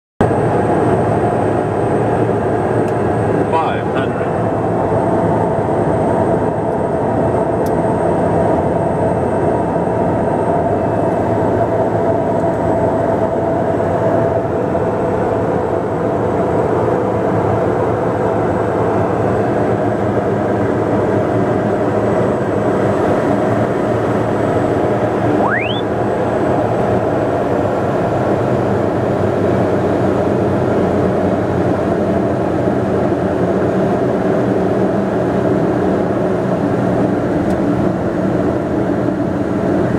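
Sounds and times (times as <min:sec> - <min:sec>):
turboprop engine droning: 0:00.2 - 0:39.9
short rising tone: 0:25.3 - 0:25.9.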